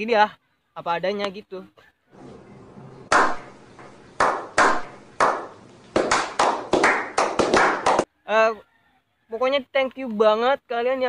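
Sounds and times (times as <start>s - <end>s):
men slow clapping: 3.1s - 8.1s.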